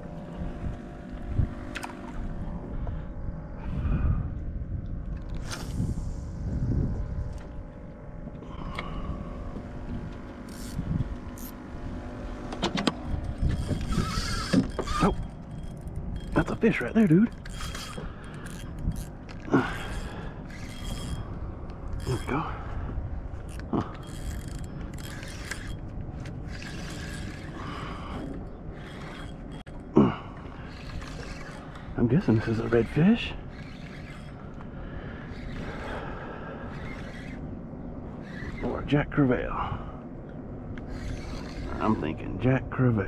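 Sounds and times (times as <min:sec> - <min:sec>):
fishing reel cranking with clicks: 0:10.4 - 0:11.6, 0:13.1 - 0:21.3, 0:21.9 - 0:22.4, 0:23.5 - 0:29.8, 0:30.6 - 0:34.6, 0:35.2 - 0:36.1, 0:36.7 - 0:37.4, 0:38.2 - 0:38.8, 0:40.8 - 0:42.2.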